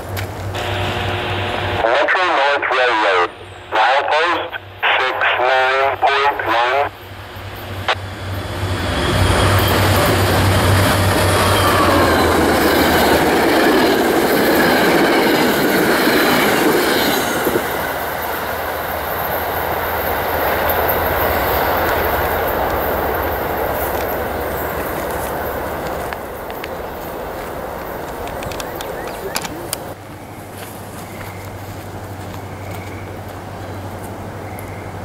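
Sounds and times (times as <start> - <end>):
diesel locomotive engine hum: 0.0 - 35.0
low train rumble: 0.0 - 35.0
train wheels rattling and squealing: 7.2 - 31.6.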